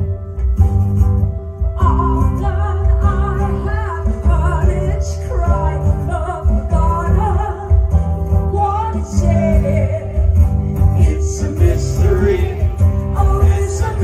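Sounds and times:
electric guitar: 0.0 - 14.0
woman singing into a microphone: 1.8 - 12.4.

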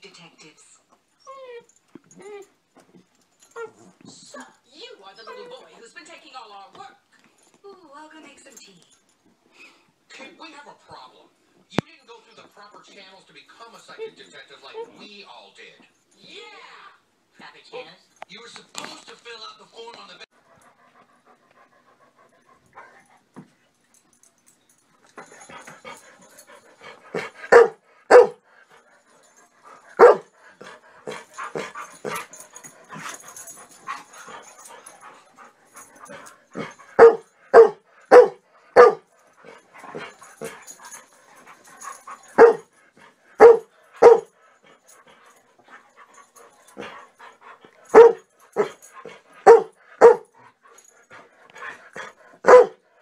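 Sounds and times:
dogs barking: 27.0 - 28.4, 29.8 - 30.3, 31.0 - 44.4, 46.1 - 50.3, 51.7 - 52.8.

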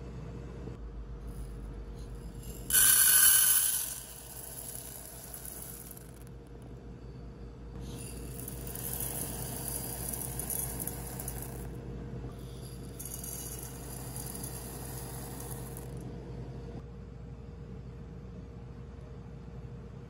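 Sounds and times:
dry rice poured into pot: 2.4 - 6.1, 8.0 - 11.6, 13.0 - 15.8.

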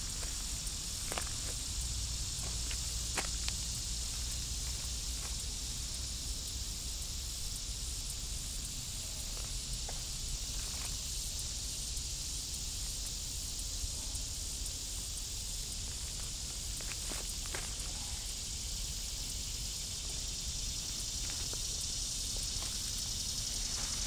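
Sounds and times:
shrill insect chorus: 0.0 - 24.0
faint ticks: 0.1 - 6.6.

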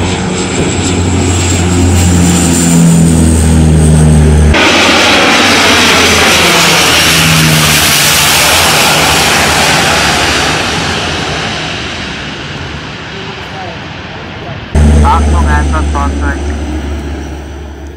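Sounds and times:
propeller engines droning: 0.0 - 17.9
loud even rush: 14.8 - 17.6.

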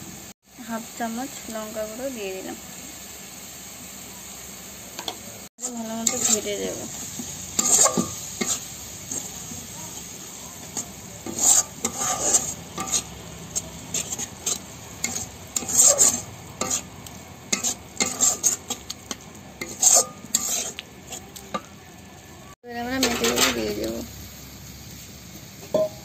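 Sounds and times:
hot oil sizzling: 0.0 - 26.0
spatula scraping a pan: 5.6 - 21.7.

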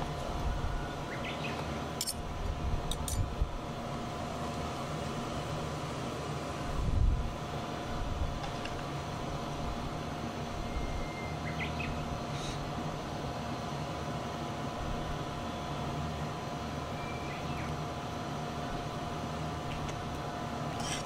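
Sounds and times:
low outdoor hum: 0.0 - 21.0
knife and fork scraping plate: 20.8 - 21.0.

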